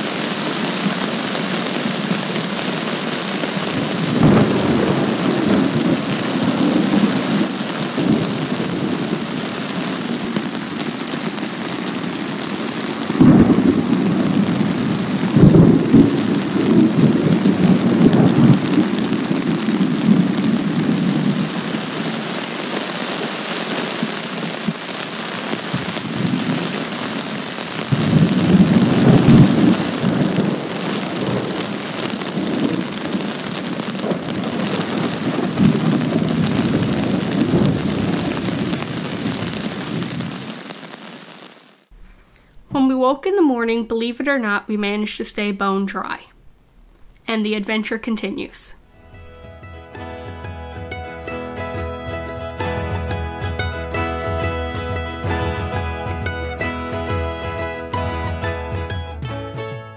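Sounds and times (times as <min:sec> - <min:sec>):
thunder rolling: 0:00.0 - 0:40.7
heavy rain: 0:00.0 - 0:42.6, 0:49.9 - 0:58.9.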